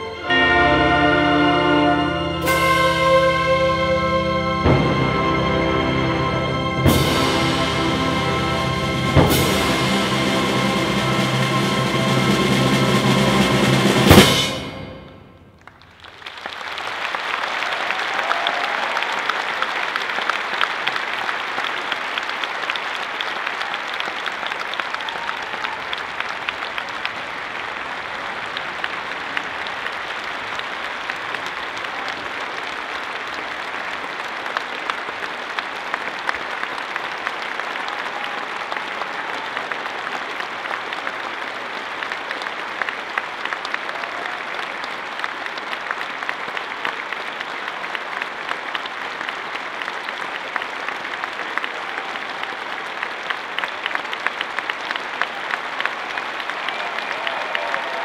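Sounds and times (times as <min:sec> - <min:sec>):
audience applauding: 0:15.5 - 0:58.0.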